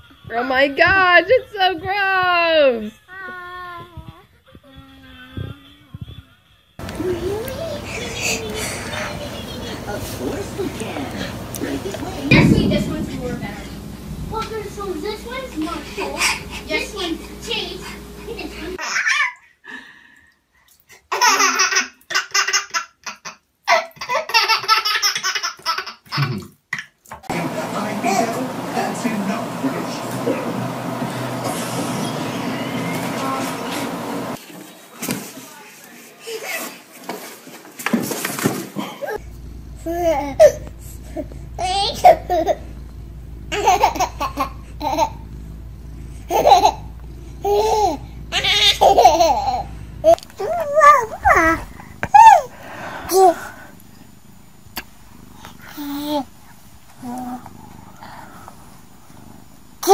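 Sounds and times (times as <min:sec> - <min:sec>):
steady hiss: 0:06.8 - 0:18.8, 0:39.2 - 0:59.9
baby laughing: 0:18.4 - 0:19.5, 0:21.1 - 0:26.4, 0:43.5 - 0:45.2, 0:46.3 - 0:52.5.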